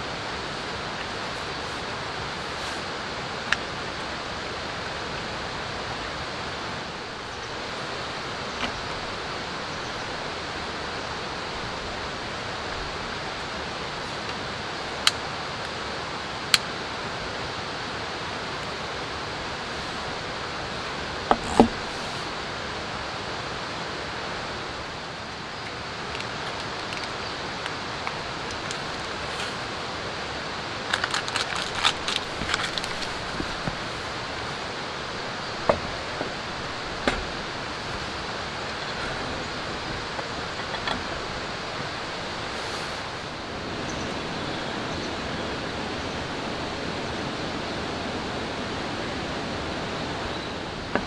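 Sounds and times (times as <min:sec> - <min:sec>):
steady rushing noise: 0:00.0 - 0:51.0
metal camp gear clinking: 0:30.9 - 0:34.2.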